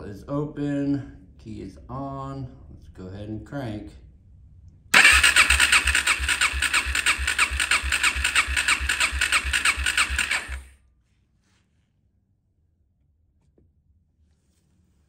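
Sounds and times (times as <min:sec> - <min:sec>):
engine cranking on starter: 0:05.0 - 0:10.7.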